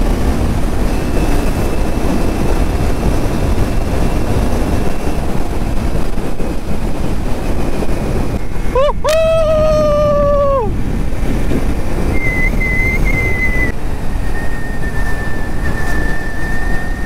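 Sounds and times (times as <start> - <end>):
wind and road noise: 0.0 - 17.0
faint high whine: 12.0 - 17.0.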